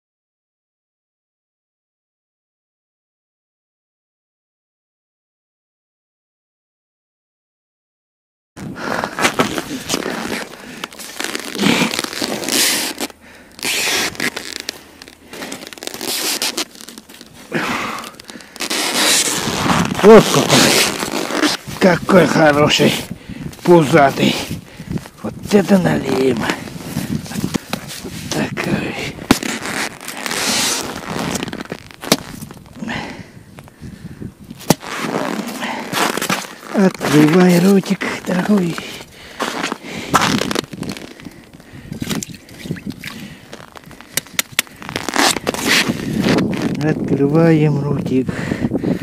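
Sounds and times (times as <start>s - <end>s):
padded clothing rustling: 8.6s - 22.7s, 29.1s - 32.6s
ice crunching: 8.6s - 33.8s, 34.5s - 47.0s.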